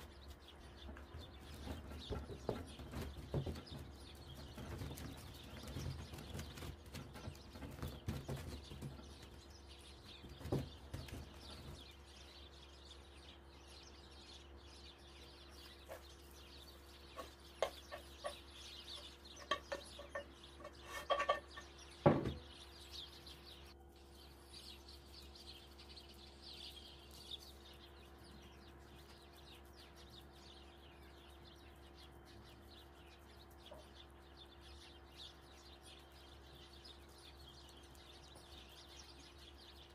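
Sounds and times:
steady low hum: 0:00.0 - 0:39.9
filling spread with taps and scrapes: 0:15.6 - 0:22.4.

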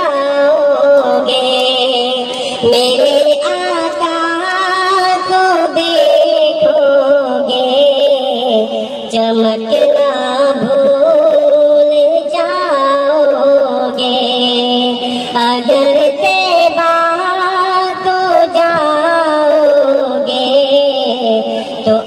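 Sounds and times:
high voice singing devotional song: 0:00.0 - 0:22.0.

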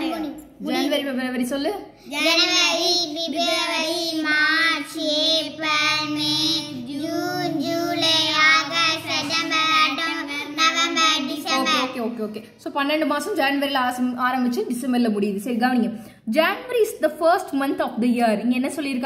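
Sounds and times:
child singing: 0:02.2 - 0:11.8.

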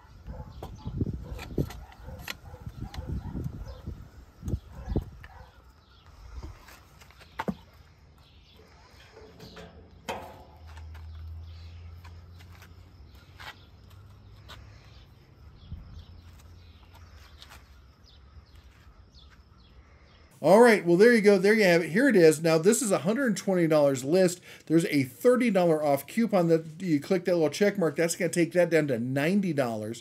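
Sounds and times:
metallic clunk: 0:09.0 - 0:11.0.

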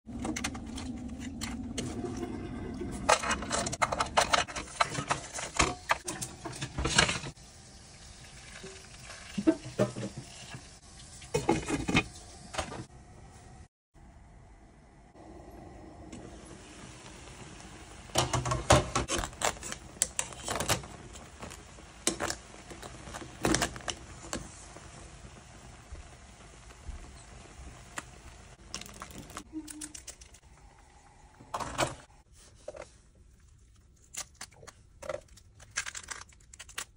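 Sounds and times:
water boiling in a pan: 0:00.2 - 0:12.9, 0:15.1 - 0:32.2
crab shells cracking: 0:34.0 - 0:36.9.

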